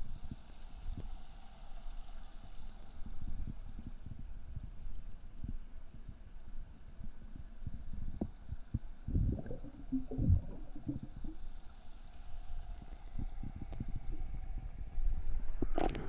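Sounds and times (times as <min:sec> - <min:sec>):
muffled underwater rumbling and gurgling: 0:02.8 - 0:16.0
low underwater thuds and bumps: 0:08.1 - 0:11.5.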